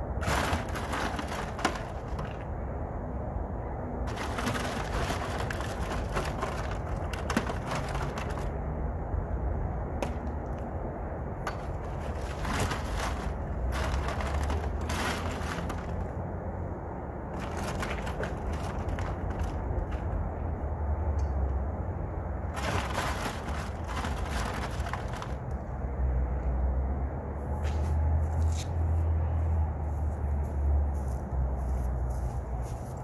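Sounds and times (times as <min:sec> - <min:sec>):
concrete chunks clattering in wheelbarrow: 0:00.2 - 0:02.4, 0:04.1 - 0:08.5, 0:11.5 - 0:16.1, 0:17.4 - 0:20.0, 0:22.5 - 0:25.4.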